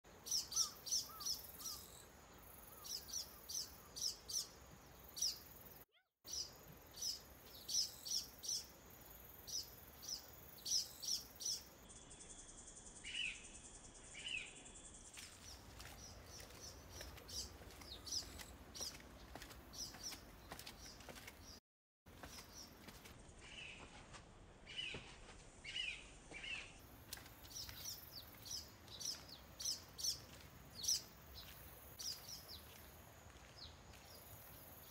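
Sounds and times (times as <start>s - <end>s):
small birds chirping: 0.1s - 34.9s.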